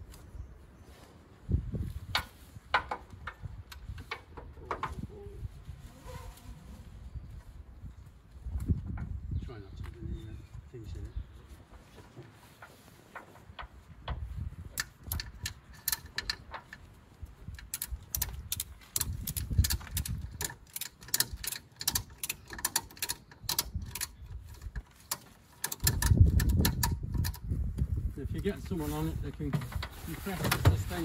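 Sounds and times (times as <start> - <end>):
ratchet strap pawl clicking: 14.8 - 16.5, 17.5 - 27.5.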